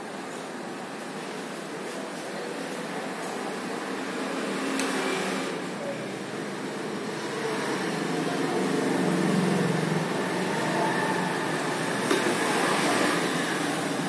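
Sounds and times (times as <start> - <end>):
hot air blower hissing: 4.6 - 14.0.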